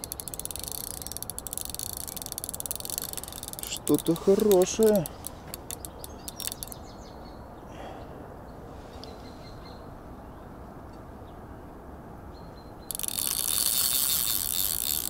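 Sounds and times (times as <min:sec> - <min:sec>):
fishing reel whirring: 0:00.0 - 0:06.8, 0:12.9 - 0:15.0.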